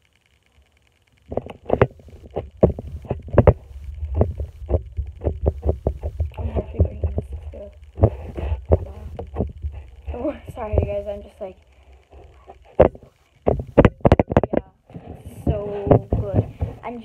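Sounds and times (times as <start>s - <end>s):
low rumble: 1.2s - 14.0s.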